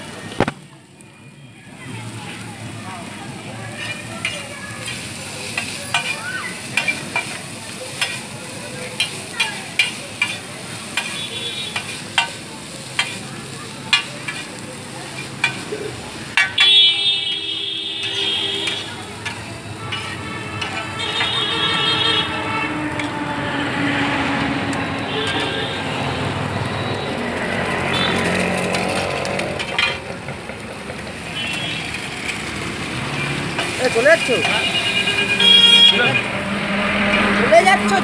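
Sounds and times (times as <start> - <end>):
food sizzling: 1.7 - 38.0
metal spatulas scraping griddle: 3.7 - 12.4, 13.9 - 16.7, 18.0 - 21.4, 28.2 - 30.1
vehicle horn: 11.0 - 11.8, 16.6 - 19.0, 19.8 - 23.4, 25.0 - 27.2, 27.8 - 28.4, 31.3 - 32.0, 34.2 - 36.4.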